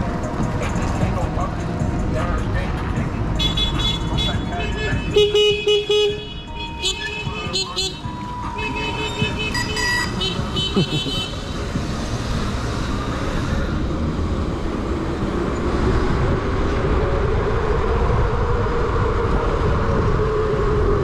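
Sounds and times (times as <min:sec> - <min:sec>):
road rumble: 0:00.0 - 0:21.0
wind: 0:00.0 - 0:21.0.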